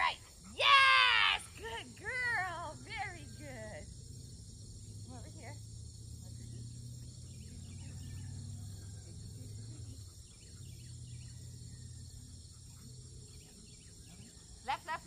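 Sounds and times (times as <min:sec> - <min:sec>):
insects trilling: 0:00.0 - 0:15.0
faint bird chirps: 0:06.3 - 0:15.0.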